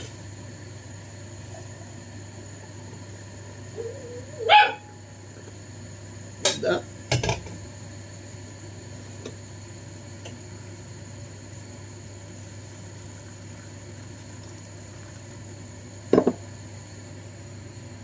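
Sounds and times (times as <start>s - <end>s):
steady low hum: 0.0s - 18.0s
teapot knocking on counter: 16.1s - 16.5s.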